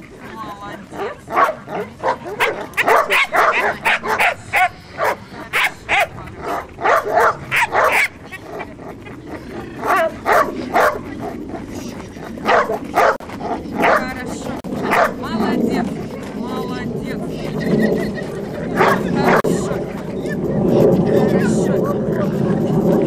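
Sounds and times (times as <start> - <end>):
dog barking excitedly: 1.0 - 9.0, 9.8 - 11.5, 12.3 - 15.4, 18.8 - 19.5.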